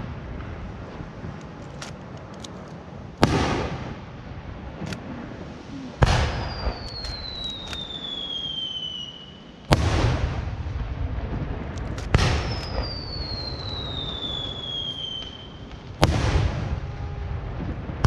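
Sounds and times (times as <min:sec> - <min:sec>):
firework booms with rumbling echo: 0:00.0 - 0:01.4, 0:03.0 - 0:05.4, 0:06.0 - 0:18.0
sharp firework pops: 0:03.2 - 0:04.0, 0:06.0 - 0:09.0, 0:09.6 - 0:16.8
high falling whistle: 0:12.5 - 0:15.6.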